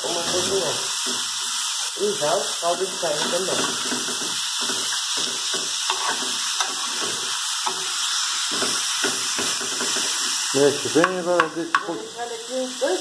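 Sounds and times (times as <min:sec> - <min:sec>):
food sizzling in oil: 0:00.0 - 0:13.0
metal spoon scraping a pan: 0:02.7 - 0:11.9.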